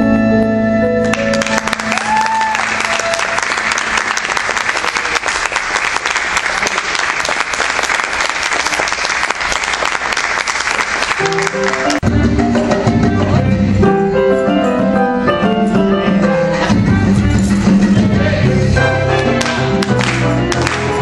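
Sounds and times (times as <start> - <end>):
audience clapping: 1.0 - 12.0, 19.4 - 21.0.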